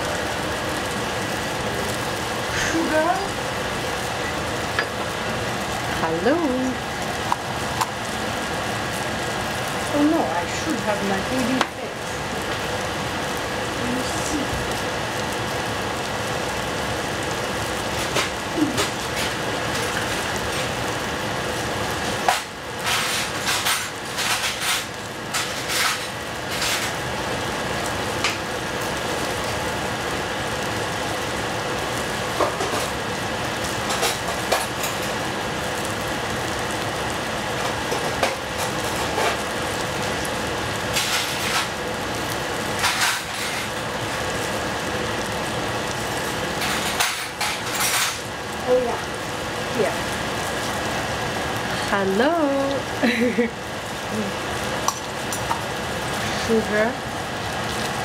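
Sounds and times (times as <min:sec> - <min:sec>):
tomatoes sizzling in a saucepan: 0:00.0 - 0:58.0.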